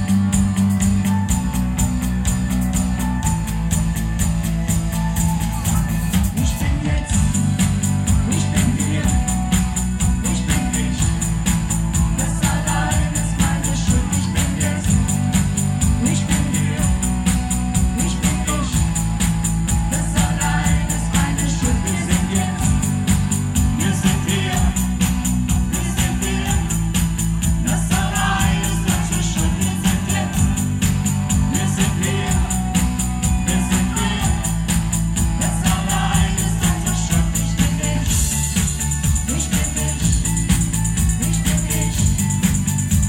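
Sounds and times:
electronic drum kit: 0:00.0 - 0:43.0
keyboard: 0:00.0 - 0:43.0
steady ticking beat: 0:00.0 - 0:43.0
man singing: 0:06.3 - 0:42.7.

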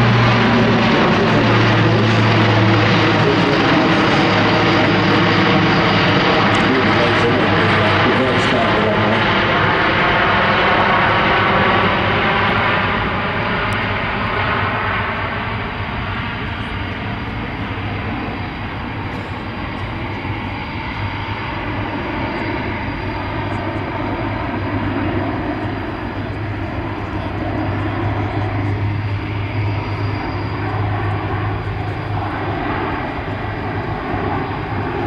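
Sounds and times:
aircraft engines droning: 0:00.0 - 0:35.0
constant low hum: 0:11.6 - 0:35.0.

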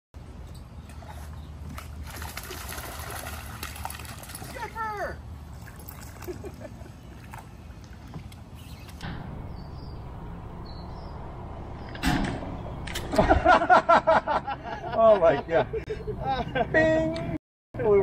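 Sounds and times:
low boat hum: 0:00.2 - 0:16.7
fish splashing: 0:00.9 - 0:04.6.

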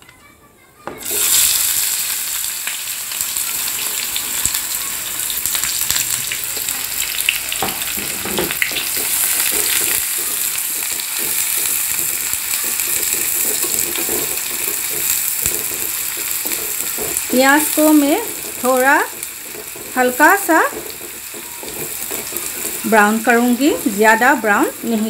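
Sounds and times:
onions sizzling in oil: 0:01.0 - 0:25.0
spatula scraping and knocking pan: 0:06.5 - 0:25.0.

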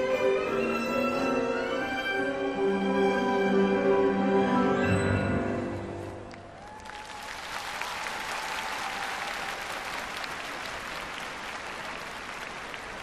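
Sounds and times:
crowd applauding: 0:06.3 - 0:13.0.

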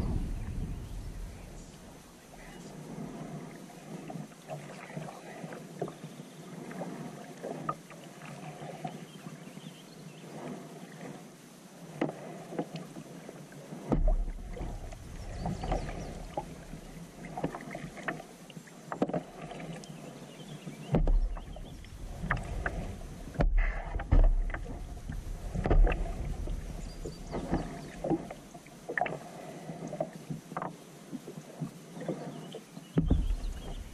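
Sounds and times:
low thumps: 0:00.0 - 0:02.0, 0:20.9 - 0:27.7, 0:33.0 - 0:33.9
paddle strokes splashing: 0:00.0 - 0:33.9.

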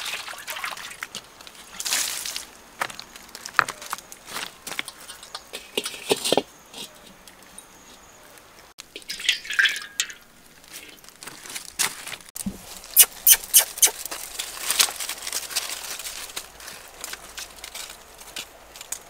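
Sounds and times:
green onions crackling: 0:08.9 - 0:19.0
liquid pouring into wok: 0:09.0 - 0:10.2.

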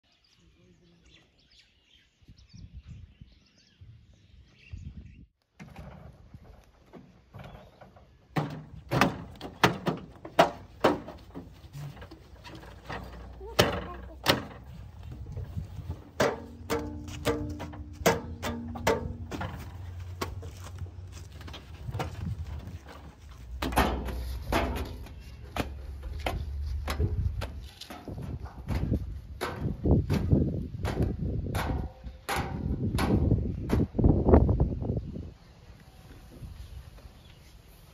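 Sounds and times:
birds chirping: 0:00.0 - 0:05.3, 0:07.1 - 0:08.4
knocks and clunks on tractors: 0:05.5 - 0:34.6.

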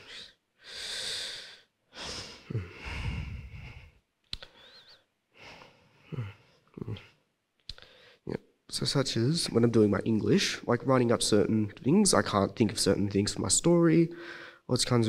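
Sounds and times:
person breathing and sighing: 0:00.0 - 0:08.3, 0:14.1 - 0:14.7
mouth clicks: 0:04.2 - 0:05.0, 0:06.8 - 0:07.9.

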